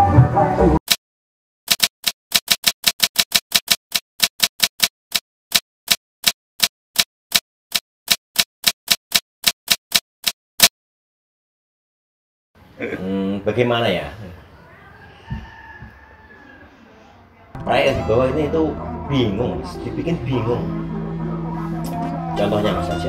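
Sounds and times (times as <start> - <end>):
music: 0.0 - 0.8, 17.6 - 23.0.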